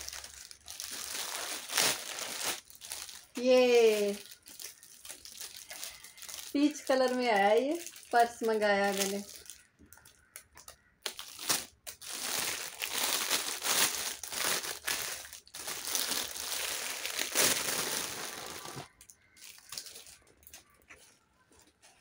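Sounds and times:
plastic bag crinkling: 0.0s - 22.0s.

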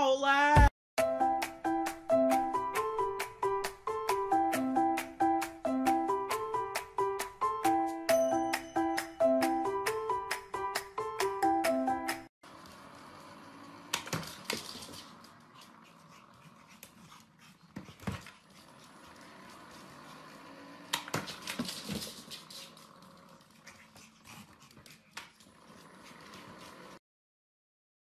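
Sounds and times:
puppy panting: 14.5s - 20.6s, 21.3s - 27.0s.

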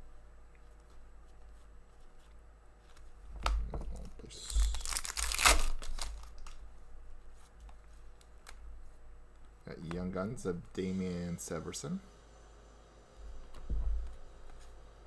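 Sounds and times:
foil wrapper crinkling: 4.3s - 6.6s.

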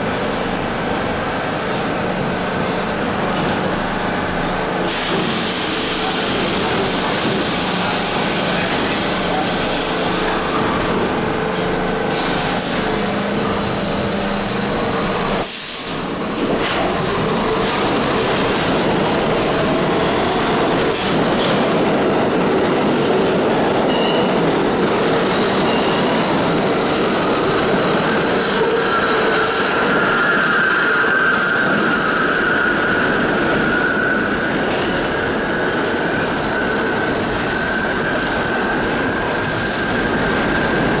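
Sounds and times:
subway train wheels rumbling: 0.0s - 41.0s
high wheel squeal: 5.0s - 18.9s, 25.3s - 40.2s.

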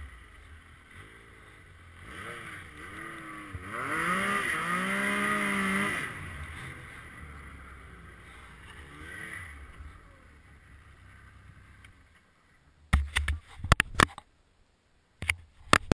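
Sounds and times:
snowmobile engine running low: 0.0s - 12.1s
sharp knocks and clicks: 12.9s - 14.3s.

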